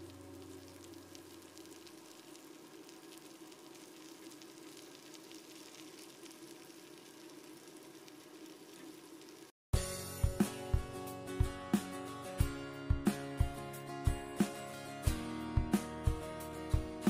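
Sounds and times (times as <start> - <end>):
food sizzling in a pan: 0.0 - 9.5
small crackles: 0.0 - 9.6.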